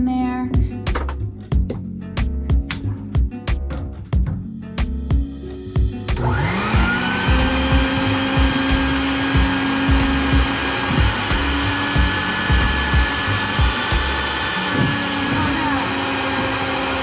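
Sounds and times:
background music with steady beat: 0:00.0 - 0:14.8
vacuum motor whine: 0:06.2 - 0:17.0.

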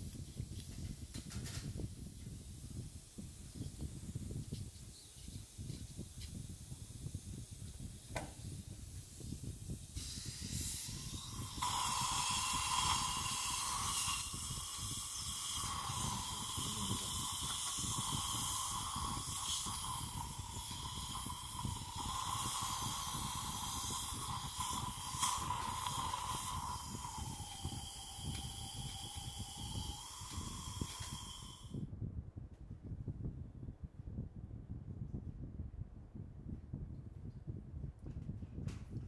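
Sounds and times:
dental suction hissing: 0:02.0 - 0:31.8.

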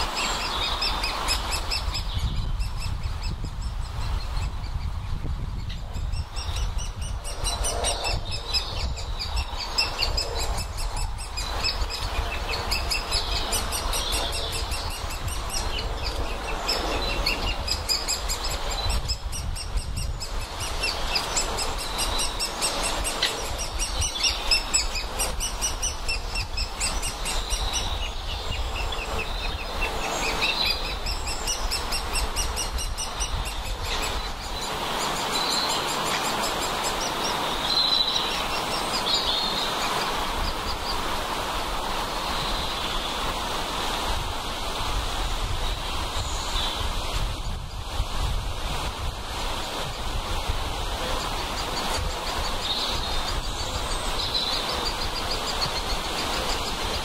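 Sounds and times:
woodpeckers calling: 0:05.6 - 0:41.1.

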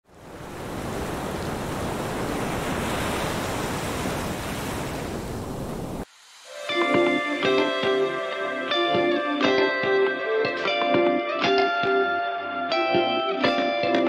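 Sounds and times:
ocean surf: 0:00.0 - 0:11.4
guitar music: 0:06.5 - 0:14.0.

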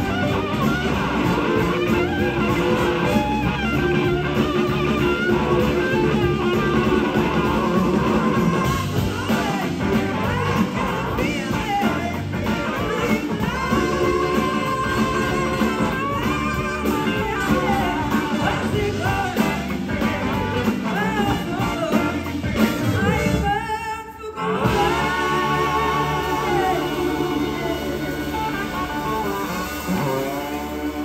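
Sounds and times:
blues-rock band playing: 0:00.0 - 0:31.0
woman singing lead vocal: 0:07.0 - 0:31.0.

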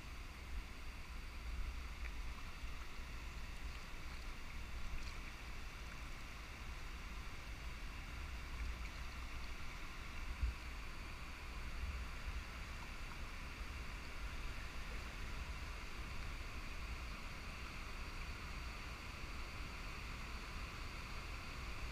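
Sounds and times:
river water hissing: 0:00.0 - 0:21.9
faint ticks: 0:01.7 - 0:06.1.

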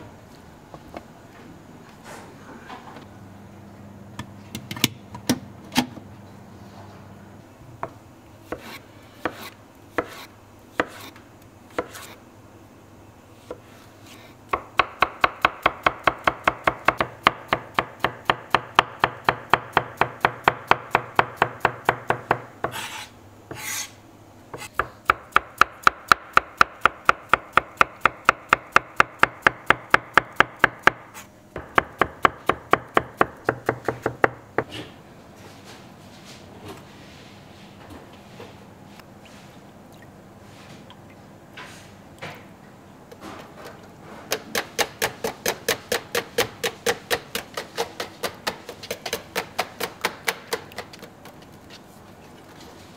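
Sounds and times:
knife chopping on plastic board: 0:31.6 - 0:34.8, 0:44.3 - 0:51.1.

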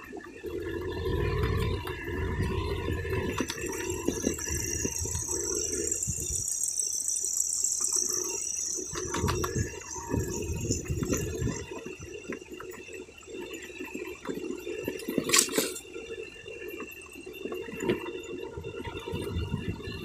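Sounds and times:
wind rumble on microphone: 0:00.0 - 0:06.6, 0:08.0 - 0:20.0.

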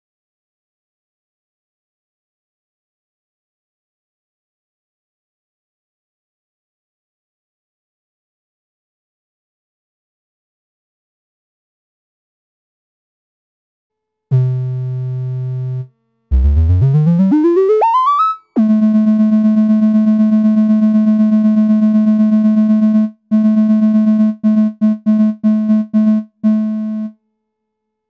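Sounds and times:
analog synthesizer notes: 0:14.3 - 0:27.1.

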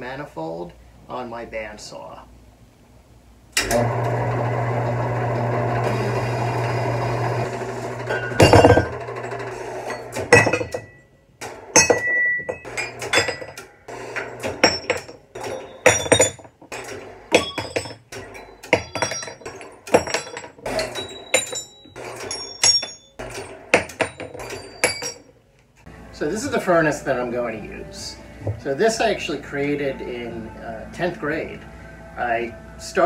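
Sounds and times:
machine hum: 0:02.9 - 0:32.8
metal parts clinking: 0:08.2 - 0:11.0, 0:11.8 - 0:25.4.

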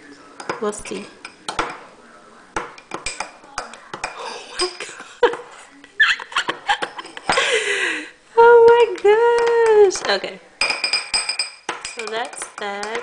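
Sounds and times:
metal spoon clinking against glass: 0:09.0 - 0:13.0.

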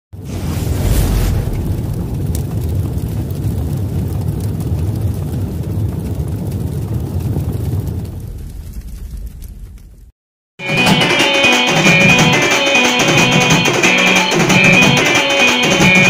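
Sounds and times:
steady low rumble: 0:00.2 - 0:10.1.

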